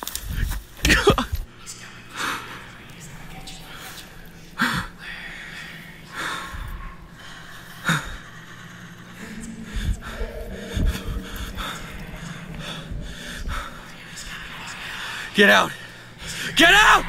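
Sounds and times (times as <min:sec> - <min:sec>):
person breathing hard: 0:03.6 - 0:16.6
low thumps: 0:09.1 - 0:15.4.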